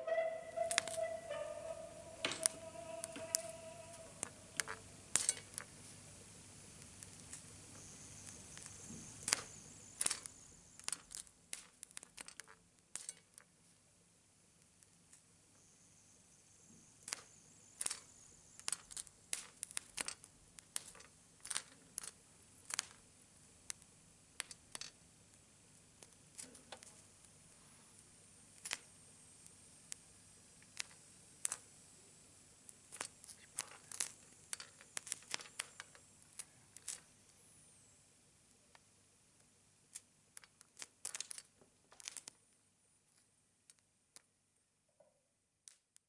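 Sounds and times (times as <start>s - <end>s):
sparks crackling: 4.1s - 5.7s, 6.6s - 13.2s, 17.0s - 23.0s, 28.6s - 31.8s, 32.6s - 37.1s, 39.9s - 42.4s.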